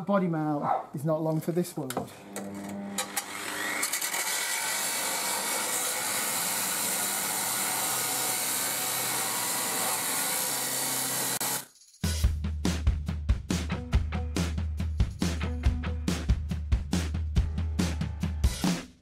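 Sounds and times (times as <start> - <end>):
angle grinder cutting metal: 1.9 - 11.7.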